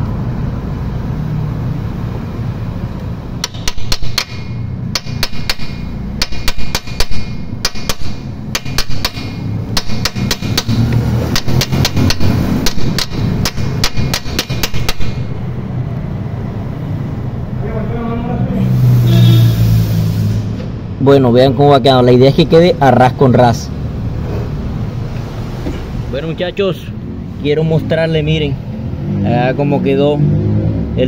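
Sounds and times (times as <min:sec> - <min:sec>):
hammer striking metal socket: 0:03.4 - 0:15.3.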